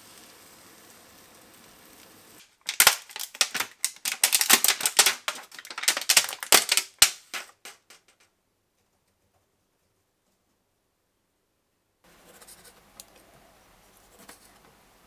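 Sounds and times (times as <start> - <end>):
plastic pack crackling and clicking: 2.4 - 8.3.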